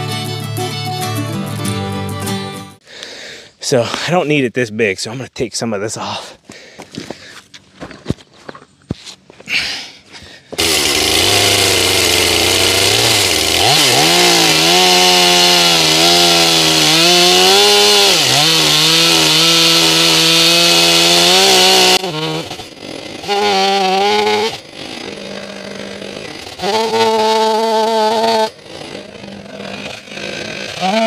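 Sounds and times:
chainsaw cutting through log: 10.6 - 31.0.

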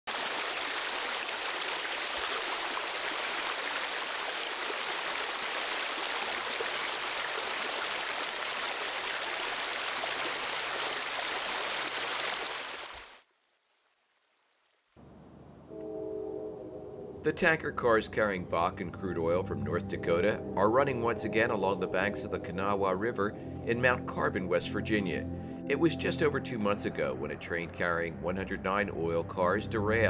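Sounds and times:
rushing stream water: 0.1 - 13.3.

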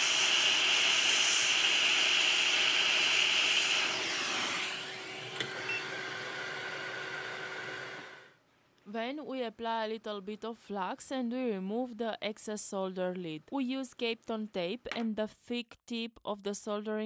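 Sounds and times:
hot air station hissing: 0.0 - 6.5.

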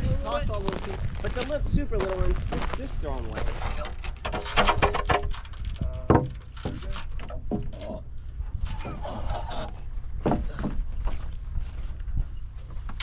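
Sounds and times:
steady low rumble: 0.0 - 13.0
building work knocks and thuds: 3.9 - 8.0, 10.2 - 11.3.

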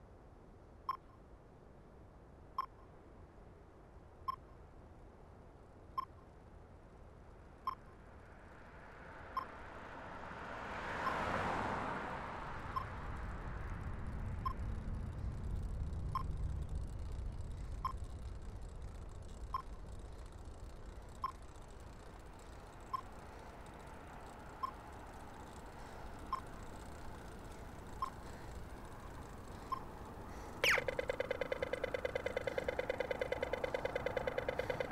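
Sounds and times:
low engine rumble: 12.3 - 34.9.

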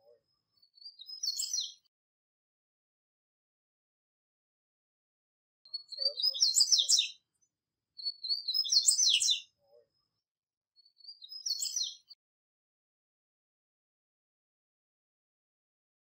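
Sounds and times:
bird twittering song: 0.0 - 1.9, 5.7 - 10.1, 10.8 - 12.2.

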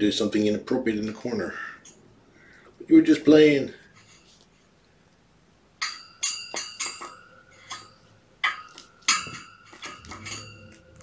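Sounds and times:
light metallic clinks: 5.8 - 11.0.

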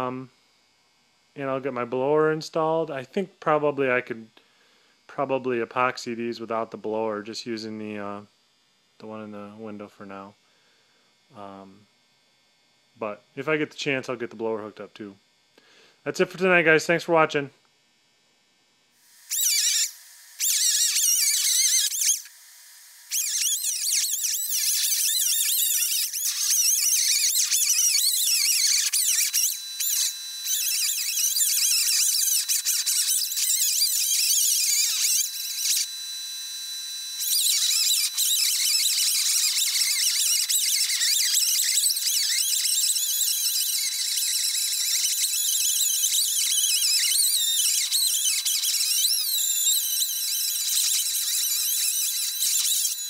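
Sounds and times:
grinder whine on steel: 19.0 - 53.0.

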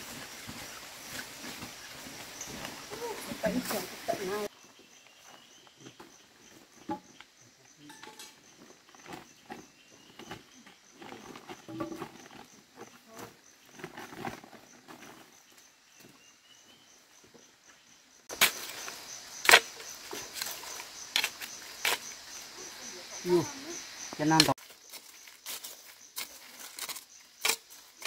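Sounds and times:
footsteps through undergrowth: 0.0 - 6.6, 24.0 - 28.0
rustling in undergrowth: 0.0 - 6.8, 18.3 - 28.0
hoe chopping into soil: 18.3 - 20.5.

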